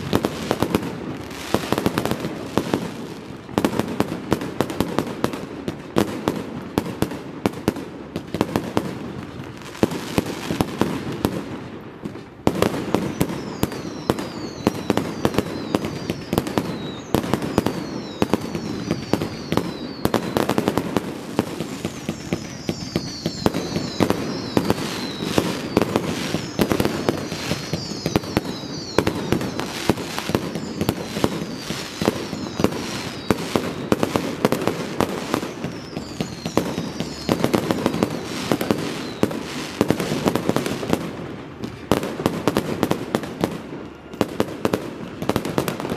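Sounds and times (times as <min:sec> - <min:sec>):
fireworks bangs and crackling: 0:00.0 - 0:45.9
falling firework whistles: 0:12.5 - 0:45.9.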